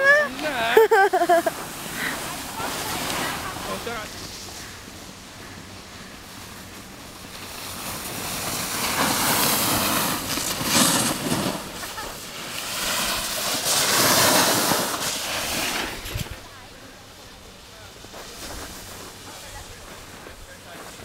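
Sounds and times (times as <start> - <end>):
snowboard scraping over snow: 0.0 - 21.0
wind rushing across microphone: 7.7 - 16.5.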